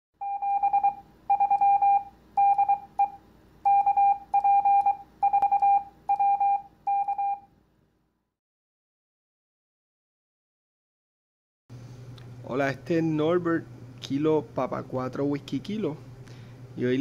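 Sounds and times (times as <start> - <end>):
morse code beeps: 0.2 - 7.5.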